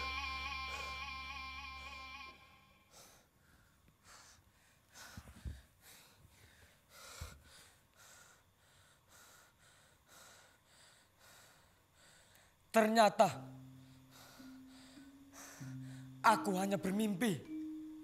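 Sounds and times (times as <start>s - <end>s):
man breathing heavily and gasping: 2.9s - 12.7s.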